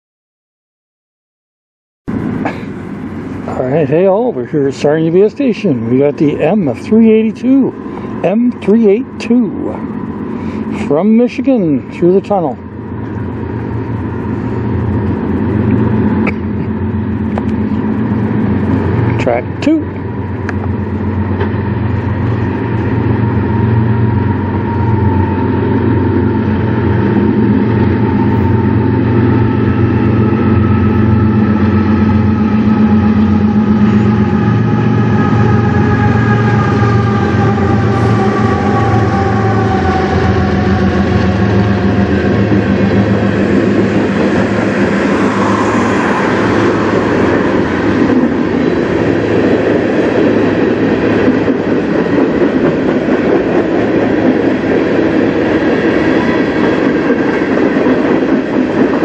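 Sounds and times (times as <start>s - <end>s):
diesel locomotive engine rumble: 2.1s - 59.0s
locomotive whine falling in pitch: 11.8s - 51.6s.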